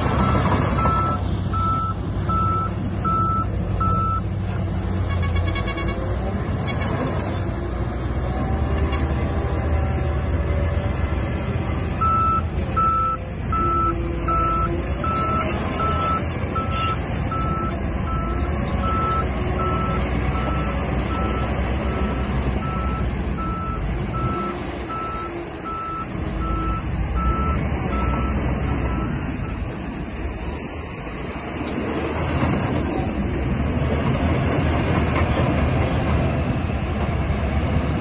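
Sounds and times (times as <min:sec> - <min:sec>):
bulldozer engine running: 0:00.0 - 0:38.0
reversing alarm beeping: 0:00.2 - 0:04.3, 0:12.0 - 0:29.8.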